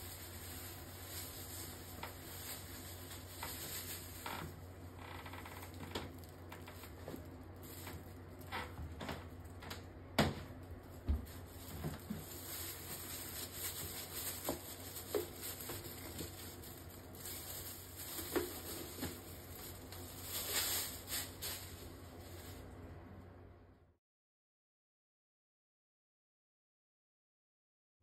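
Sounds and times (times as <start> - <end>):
fabric rustling: 0.0 - 4.6, 10.8 - 22.8
steady low hum: 0.0 - 24.0.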